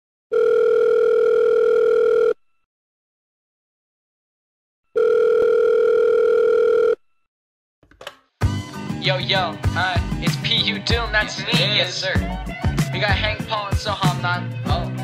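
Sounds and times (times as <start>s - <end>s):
telephone ringback tone: 0.3s - 2.4s, 5.0s - 7.0s.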